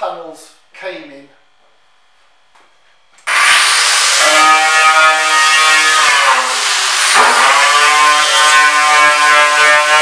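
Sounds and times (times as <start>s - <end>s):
angle grinder whining: 3.2s - 10.0s.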